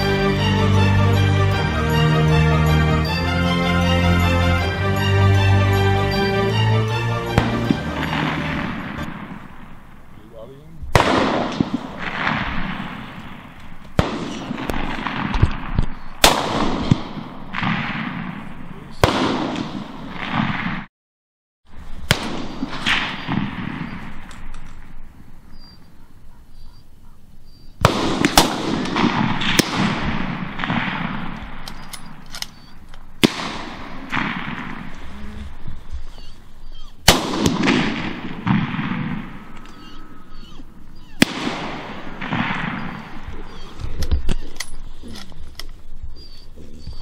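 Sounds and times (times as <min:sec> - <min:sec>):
rifle shots with rolling echo: 0:07.3 - 0:20.9, 0:22.0 - 0:26.4, 0:27.5 - 0:45.4.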